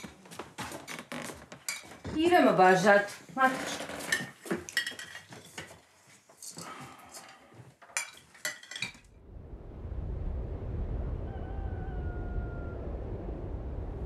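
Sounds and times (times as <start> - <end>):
spoons clinking against plates: 1.6 - 2.0, 4.1 - 9.1
low steady rumble: 9.2 - 14.0.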